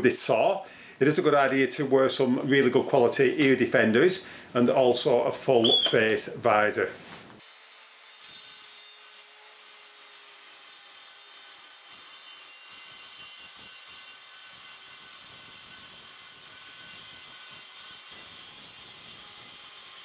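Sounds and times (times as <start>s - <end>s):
circular saw cutting metal: 7.4s - 20.0s.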